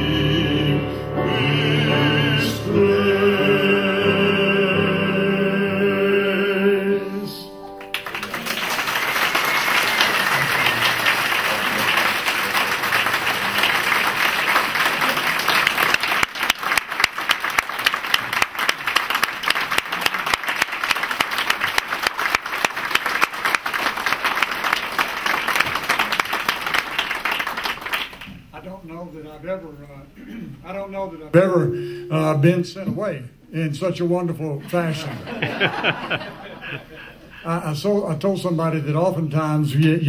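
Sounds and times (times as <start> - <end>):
group singing hymn chord: 0.0 - 8.4
audience applauding: 7.8 - 28.4.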